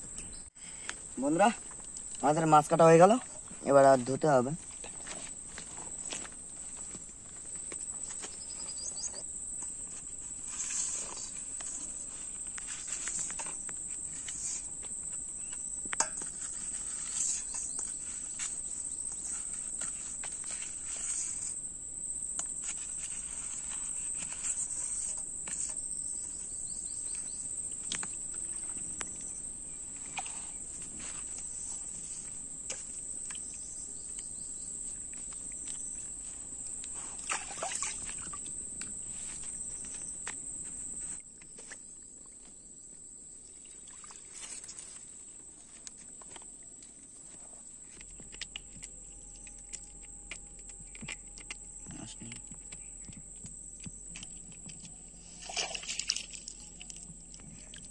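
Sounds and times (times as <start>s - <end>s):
high-pitched insect chorus: 0.3s - 46.4s, 47.0s - 57.9s
hands splashing in bowl of water: 37.2s - 38.4s, 55.3s - 57.0s.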